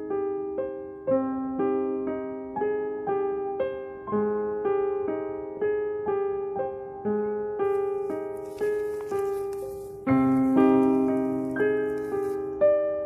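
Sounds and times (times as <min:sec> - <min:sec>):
gentle piano melody: 0:00.0 - 0:13.0.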